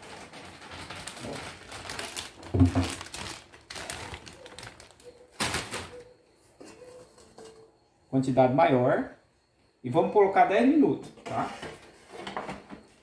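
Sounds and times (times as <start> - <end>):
plastic bag crinkling: 0.0 - 6.1.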